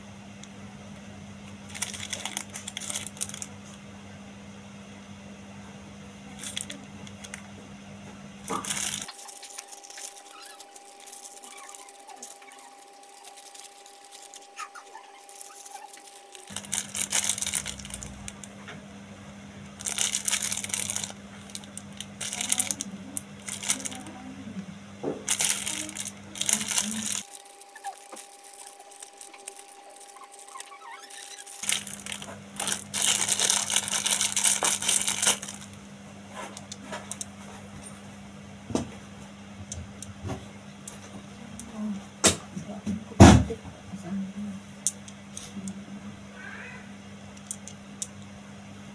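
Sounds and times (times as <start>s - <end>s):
steady low hum: 0.0s - 48.9s
plastic packaging crinkling and tearing: 1.6s - 3.6s, 6.4s - 7.4s, 8.5s - 18.6s, 19.7s - 24.2s, 25.1s - 35.8s.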